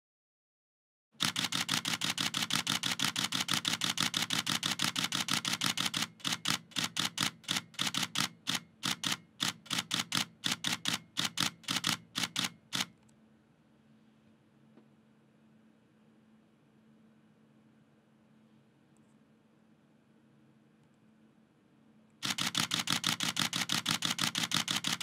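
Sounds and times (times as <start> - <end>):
camera shutter clicking in bursts: 1.2 - 13.0, 22.2 - 25.0.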